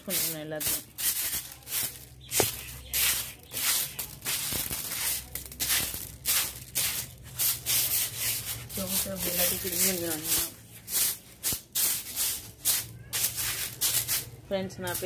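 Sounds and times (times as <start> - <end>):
broom sweeping rough ground: 0.0 - 15.0.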